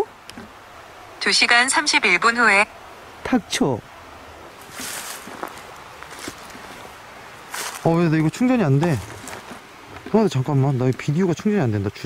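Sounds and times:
faint footsteps scuffing: 4.6 - 10.2.

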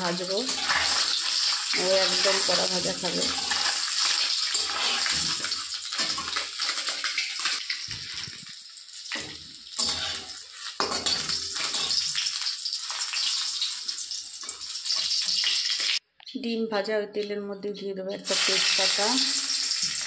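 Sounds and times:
eggs sizzling in hot oil: 0.0 - 16.0, 18.2 - 20.0
metal spatula scraping pan: 0.1 - 7.2, 9.2 - 13.7.

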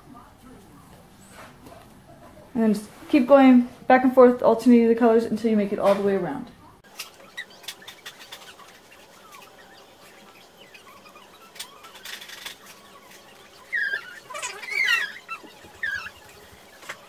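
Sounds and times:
high chirping squeals: 6.9 - 17.0.

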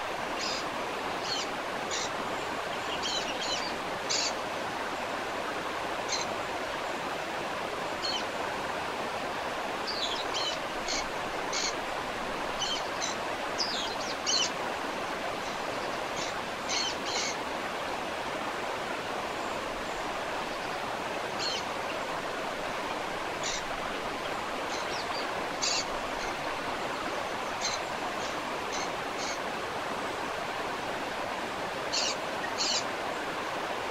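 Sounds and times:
waterfall rushing: 0.0 - 33.9.

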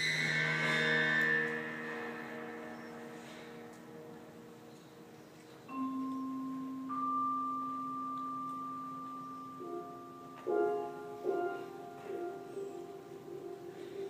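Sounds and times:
ringing mallet percussion notes: 5.6 - 11.6.

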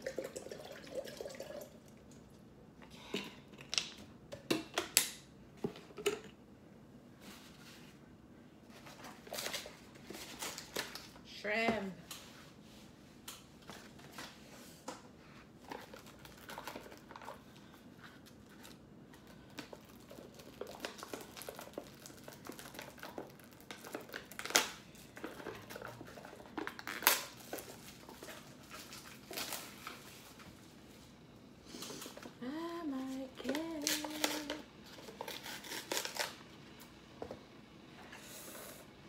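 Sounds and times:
plastic packaging crinkling: 15.6 - 30.5, 33.4 - 36.4.

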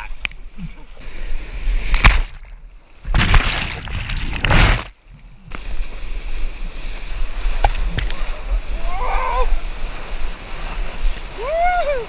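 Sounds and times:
whitewater rushing and splashing: 5.5 - 12.0.

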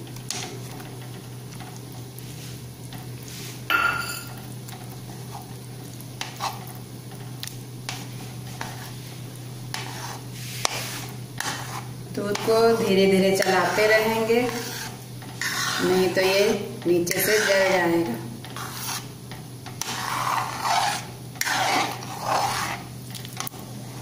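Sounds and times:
spatula scraping metal pan: 9.7 - 19.1, 19.7 - 22.9.

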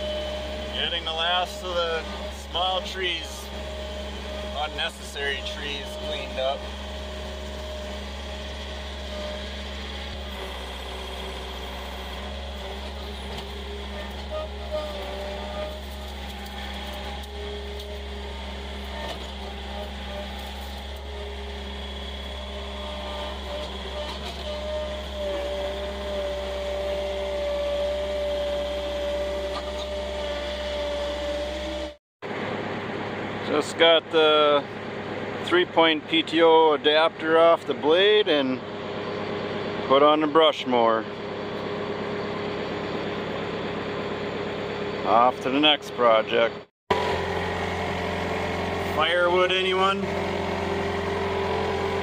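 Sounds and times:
steady whine: 0.0 - 25.1
skid steer engine running: 0.0 - 52.0.

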